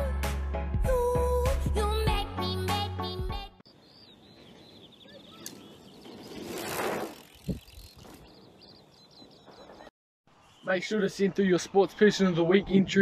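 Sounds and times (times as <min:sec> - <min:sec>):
bicycle tyre rushing on dirt: 0:04.4 - 0:09.9.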